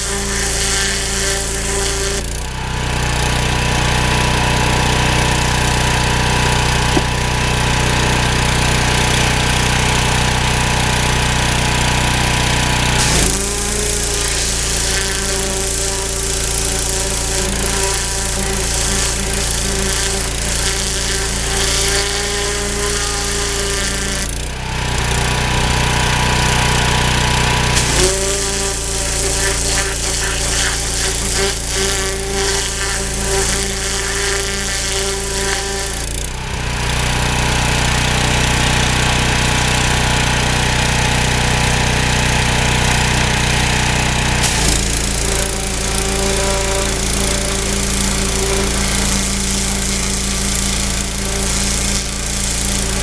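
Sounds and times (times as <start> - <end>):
pressure washer jet spraying: 0.0 - 2.3, 11.4 - 24.4, 27.6 - 36.2, 44.4 - 53.0
pressure washer motor running: 0.0 - 53.0.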